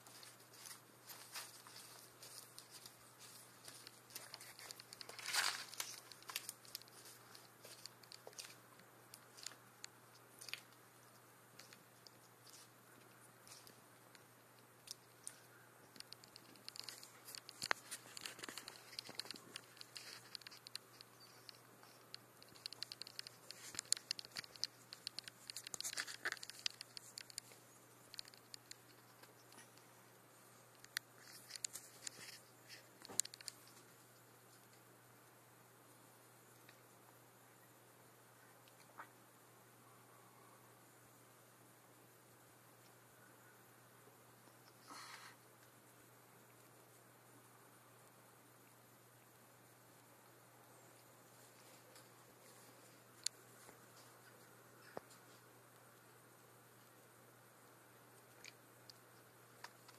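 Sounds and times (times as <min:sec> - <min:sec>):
leaves rustling: 0:00.0 - 0:09.6.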